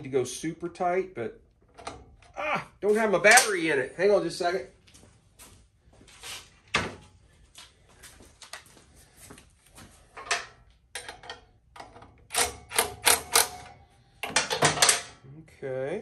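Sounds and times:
tool handling clicks and knocks: 1.6 - 2.4, 3.3 - 3.7, 10.1 - 15.2.

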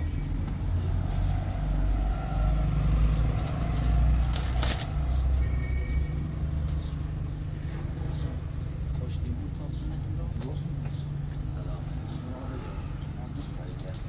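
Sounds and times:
dry branches rustling: 2.6 - 7.0.

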